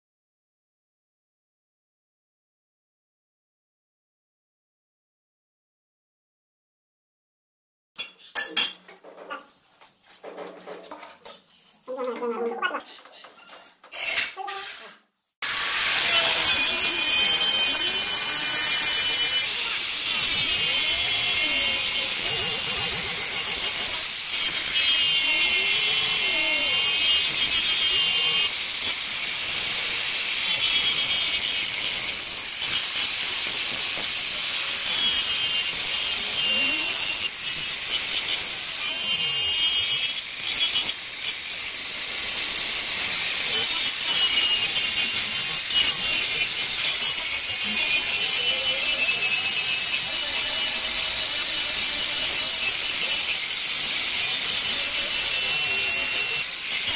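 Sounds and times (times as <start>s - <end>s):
angle grinder polishing stone: 11.9s - 56.9s.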